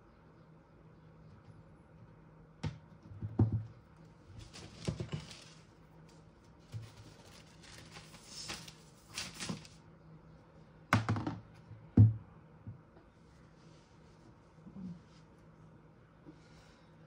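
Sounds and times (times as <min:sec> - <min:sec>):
rustling: 0:04.4 - 0:05.8, 0:06.5 - 0:09.8.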